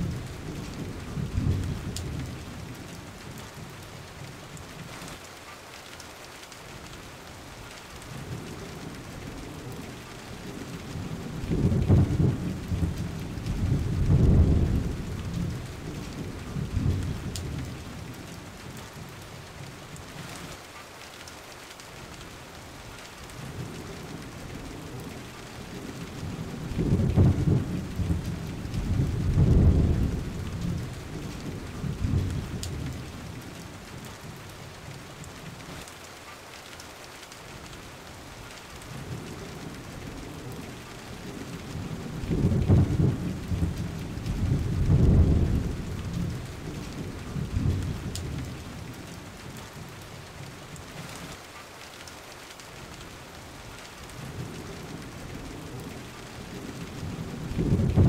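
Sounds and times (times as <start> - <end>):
rolling thunder: 0.0 - 2.7, 8.3 - 19.1, 23.4 - 33.4, 39.0 - 50.0, 54.2 - 58.0
rain hissing: 0.0 - 58.0.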